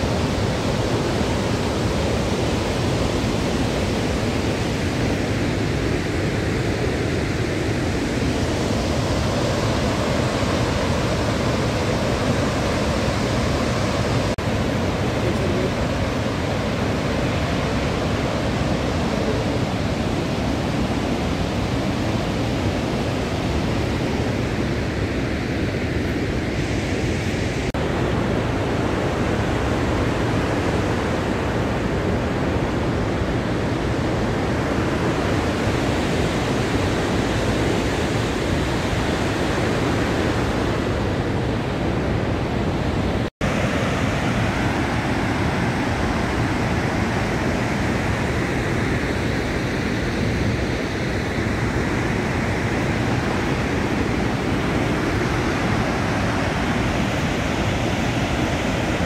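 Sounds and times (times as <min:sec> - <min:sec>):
waterfall rushing: 0:00.0 - 0:25.0, 0:34.0 - 0:59.0.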